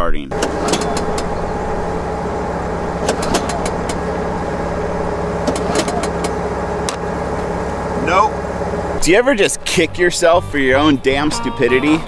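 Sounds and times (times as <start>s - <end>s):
steady engine hum: 0.2s - 12.0s
generator recoil starter pulled: 0.3s - 7.9s.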